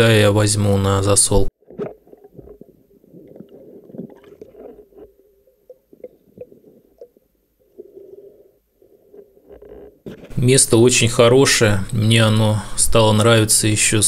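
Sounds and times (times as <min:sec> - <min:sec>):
underwater rumbling and gurgling: 0:01.6 - 0:10.3.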